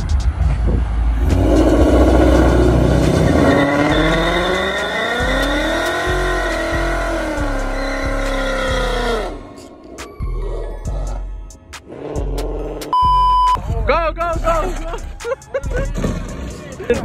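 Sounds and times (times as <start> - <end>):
car engine revving high: 1.1 - 9.6.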